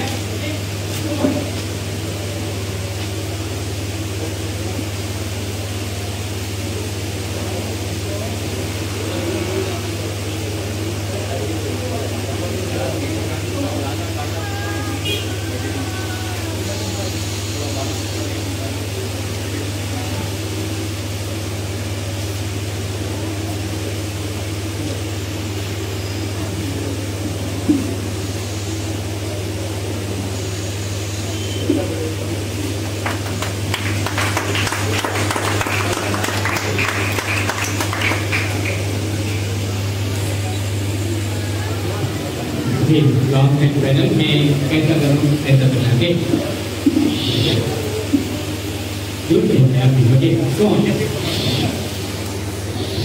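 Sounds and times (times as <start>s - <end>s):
faint audience voices: 0.0s - 53.0s
steady low hum: 0.0s - 53.0s
even hiss: 42.8s - 53.0s.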